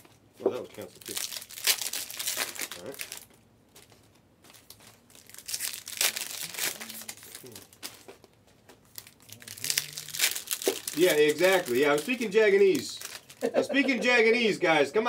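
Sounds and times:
foil wrappers crinkling: 0.0 - 13.6
faint voices: 9.3 - 10.5.

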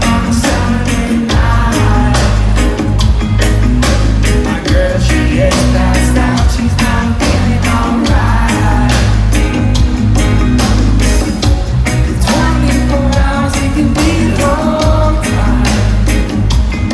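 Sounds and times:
reggae band playing live: 0.0 - 16.9.

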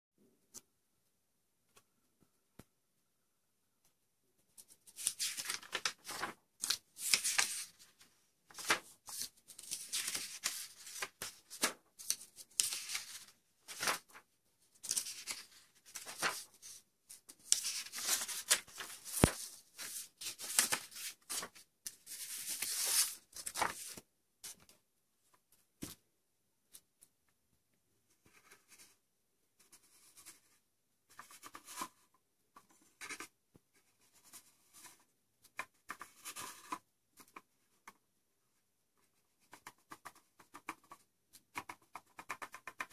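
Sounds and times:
paper sheets rustling: 4.9 - 14.2, 14.8 - 24.6.

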